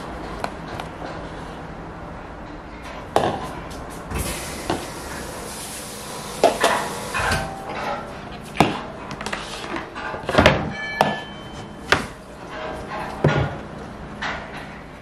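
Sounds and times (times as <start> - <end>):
tap water rushing: 4.2 - 7.5.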